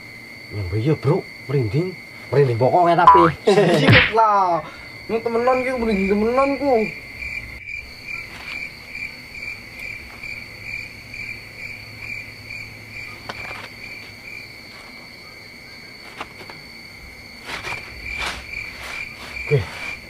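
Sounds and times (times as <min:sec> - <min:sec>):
crickets chirping: 0:00.0 - 0:20.0.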